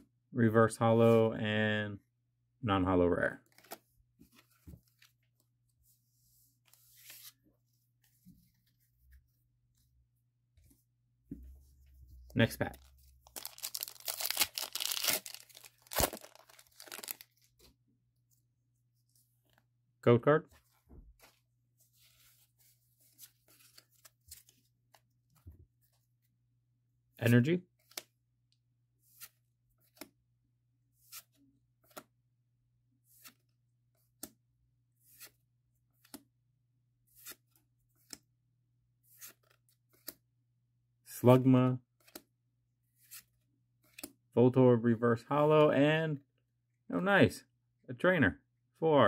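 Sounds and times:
foil wrapper tearing and crinkling: 0:13.3 - 0:17.3.

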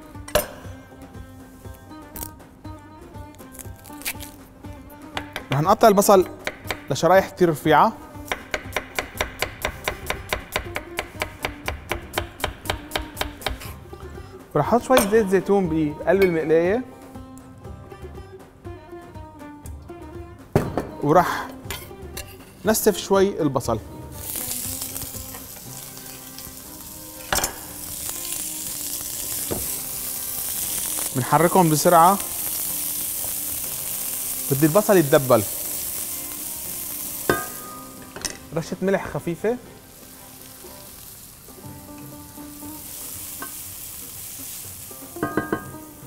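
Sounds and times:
onions sizzling in oil: 0:05.2 - 0:13.8, 0:24.1 - 0:46.0.

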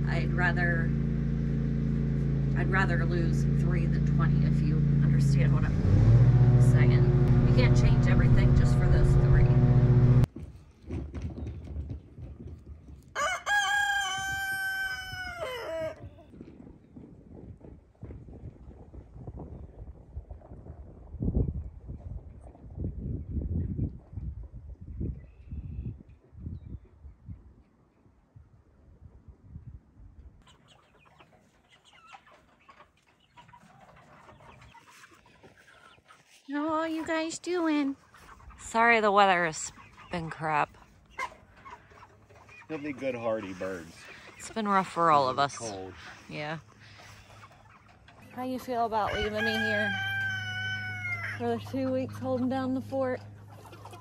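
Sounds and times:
chickens clucking and peeping: 0:00.0 - 0:10.3, 0:11.2 - 0:16.6, 0:30.4 - 0:54.0
rooster crowing: 0:13.2 - 0:16.0, 0:49.0 - 0:51.4.

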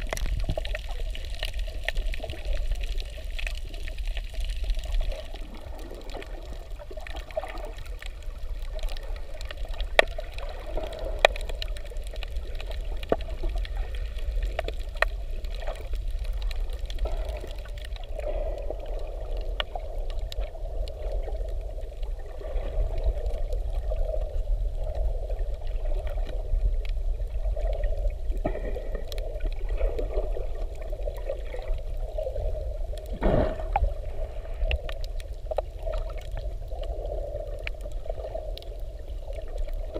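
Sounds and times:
muffled underwater rumble: 0:00.0 - 0:39.9
small clicks underwater: 0:00.0 - 0:39.9
water swoosh: 0:27.4 - 0:39.9.

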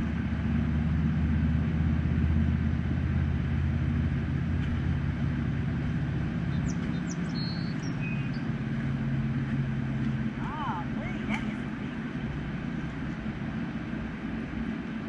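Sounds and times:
low engine drone: 0:00.0 - 0:15.0
bird chirps: 0:06.5 - 0:08.5.

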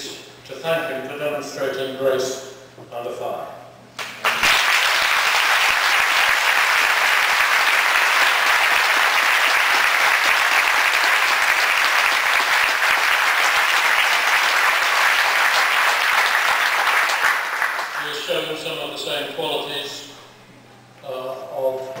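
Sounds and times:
large audience applauding: 0:04.0 - 0:18.2.

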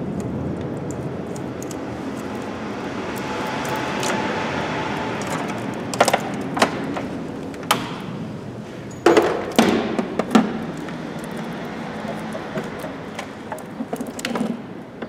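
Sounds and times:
sharp clicks and knocks: 0:05.2 - 0:08.2, 0:09.0 - 0:15.0.

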